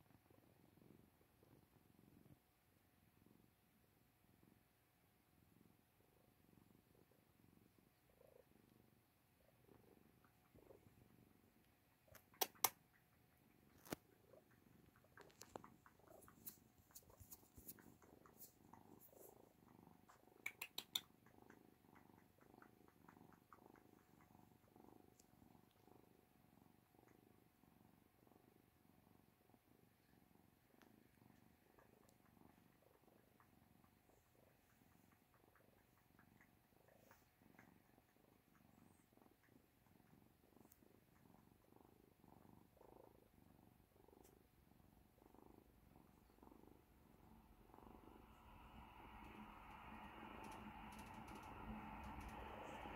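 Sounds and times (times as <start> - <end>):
cats purring: 0.0 - 52.9
sharp clicks: 12.1 - 13.0, 20.4 - 21.1.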